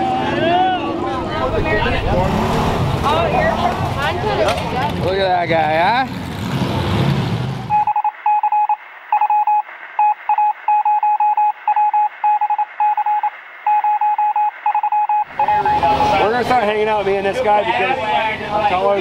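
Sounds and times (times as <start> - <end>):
outdoor rumbling: 0.0 - 7.9
morse code beeps: 7.7 - 16.4.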